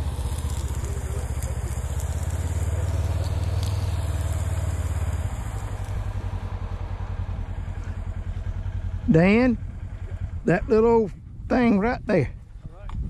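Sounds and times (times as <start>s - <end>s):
vehicle engine idling: 0.0s - 13.0s.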